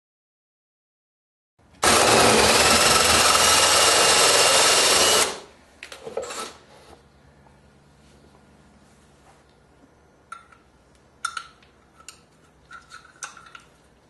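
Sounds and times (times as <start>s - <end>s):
drill with hole saw cutting: 1.8s - 5.5s, 6.2s - 6.6s.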